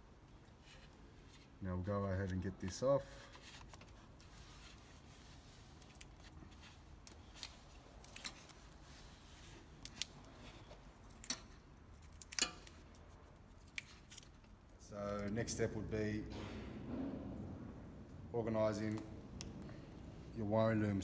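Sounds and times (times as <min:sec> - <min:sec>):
faint steady background: 0:00.0 - 0:21.0
sharp clicks and snips of wiring: 0:09.8 - 0:15.4.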